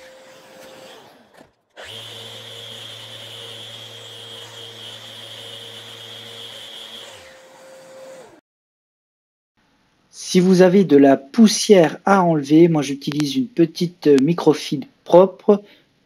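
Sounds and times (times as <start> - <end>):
orbital sander running: 1.8 - 8.4.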